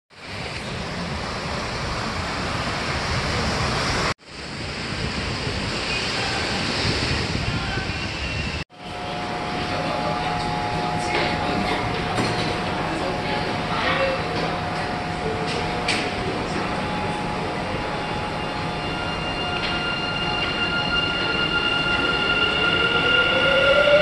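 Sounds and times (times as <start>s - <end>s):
subway platform hum: 0.1s - 24.0s
wind on microphone: 2.2s - 8.6s.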